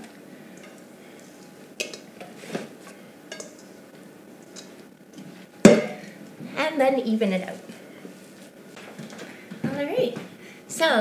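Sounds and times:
metal bowl clinking against pan: 0:03.3 - 0:03.7, 0:05.6 - 0:06.1.

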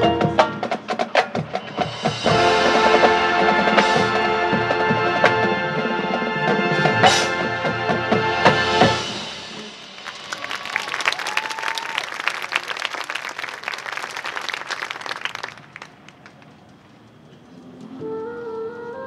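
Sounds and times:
marching band brass and percussion: 0:00.0 - 0:12.2
crowd applauding: 0:09.8 - 0:16.6.

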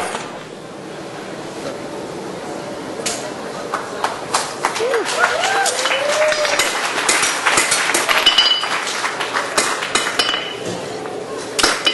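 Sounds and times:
hammer and tongs on anvil: 0:06.6 - 0:08.7, 0:09.6 - 0:10.7, 0:11.6 - 0:11.9
ringing hammer strikes: 0:06.6 - 0:08.8, 0:10.0 - 0:10.6.

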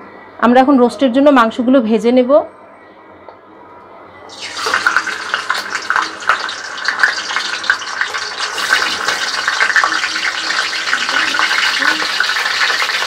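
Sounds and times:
chicken sizzling in hot oil: 0:04.3 - 0:13.0.

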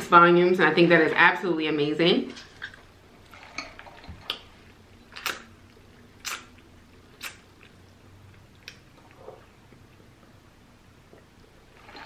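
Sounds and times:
wet mouth clicks: 0:05.2 - 0:05.5, 0:06.2 - 0:06.6, 0:07.2 - 0:07.8.

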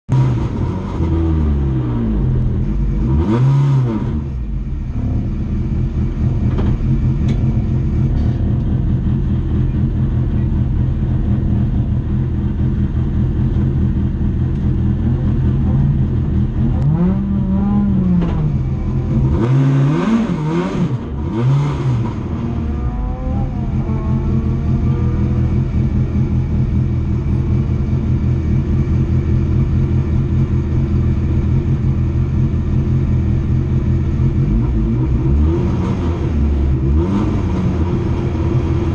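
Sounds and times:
race car engine from inside cabin: 0:00.1 - 0:38.9.

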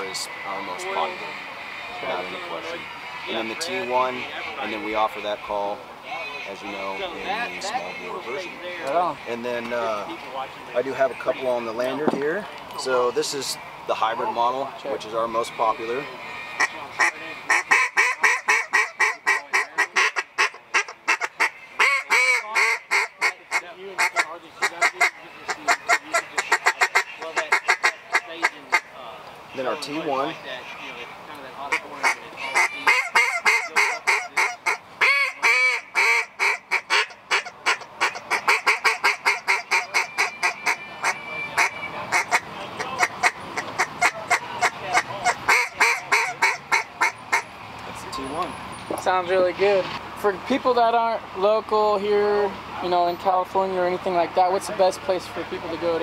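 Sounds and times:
duck call quacks: 0:15.8 - 0:28.9, 0:31.7 - 0:47.5.

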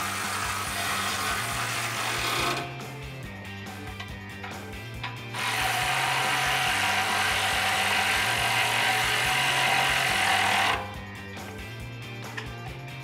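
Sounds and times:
electric ratchet motor whirring: 0:00.0 - 0:02.8, 0:05.2 - 0:11.0.

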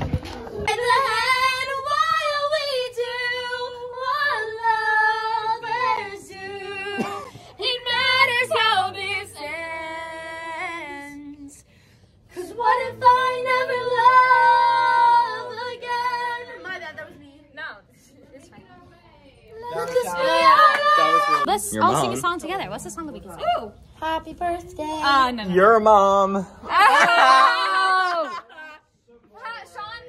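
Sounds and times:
girls singing loudly: 0:00.6 - 0:11.0, 0:12.3 - 0:17.0, 0:19.5 - 0:21.6.

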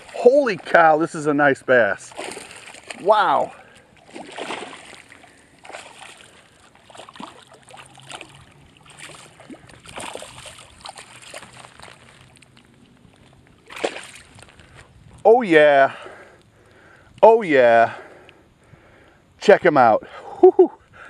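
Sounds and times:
fish splashing in water: 0:02.0 - 0:14.8.

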